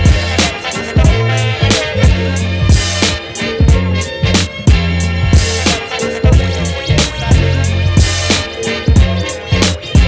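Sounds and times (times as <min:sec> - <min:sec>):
deep bass line: 0:00.0 - 0:10.0
kick drum: 0:04.7 - 0:05.5, 0:06.3 - 0:06.5.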